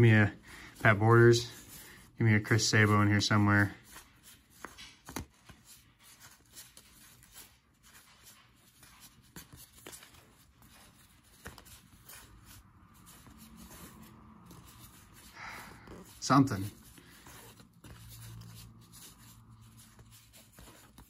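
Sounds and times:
cards flicking through a stack: 0:03.8 - 0:15.2.

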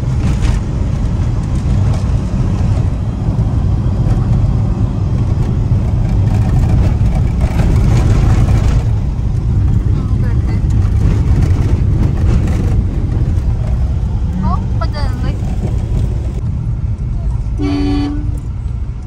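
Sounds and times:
rush of noise: 0:00.0 - 0:17.7
car engine and road noise: 0:00.0 - 0:19.0.

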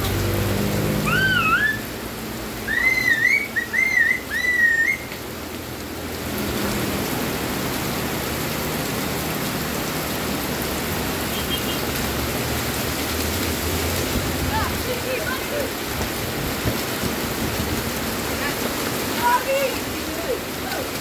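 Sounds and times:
heavy rain on vegetation: 0:00.0 - 0:21.0
wavering whistles: 0:01.0 - 0:01.9, 0:02.6 - 0:05.2.

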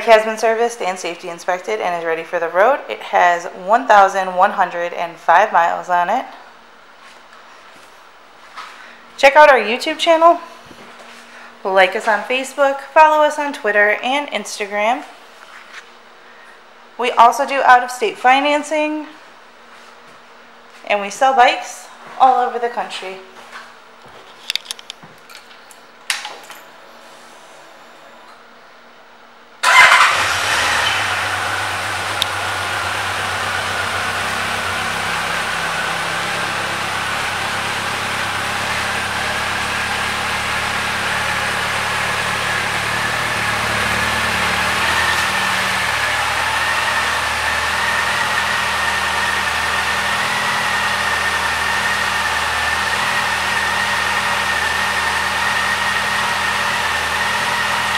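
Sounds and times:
motorcycle engine starting and idling: 0:29.6 - 0:57.9.

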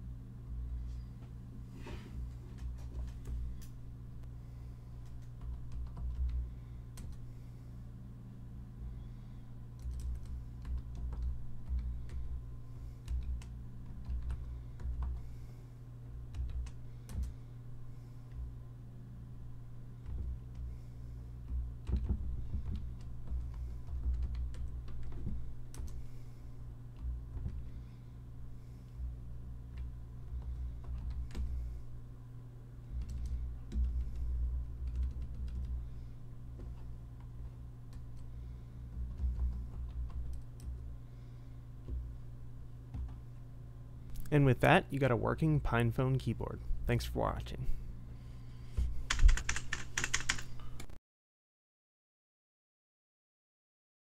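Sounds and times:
steady low hum: 0:00.0 - 0:51.0
small keyboard keys clicking: 0:05.0 - 0:07.2, 0:09.8 - 0:12.3, 0:13.0 - 0:15.2, 0:16.3 - 0:17.4, 0:21.4 - 0:26.0, 0:29.7 - 0:31.5, 0:33.0 - 0:35.8, 0:49.1 - 0:50.9.

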